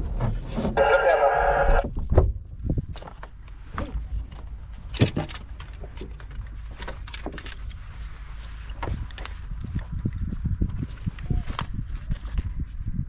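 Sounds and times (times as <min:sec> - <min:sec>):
airframe knocks and rattles: 0:04.8 - 0:07.7.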